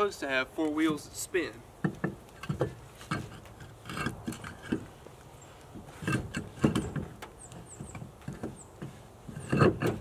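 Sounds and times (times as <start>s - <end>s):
knocks and clunks of handling tools: 1.8s - 10.0s.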